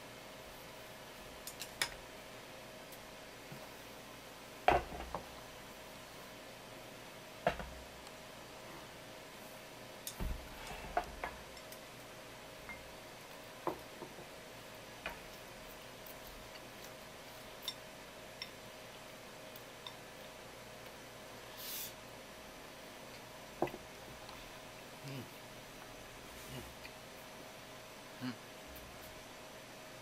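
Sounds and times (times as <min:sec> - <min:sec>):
faint steady hum: 0:00.0 - 0:30.0
brief hiss: 0:21.5 - 0:22.0.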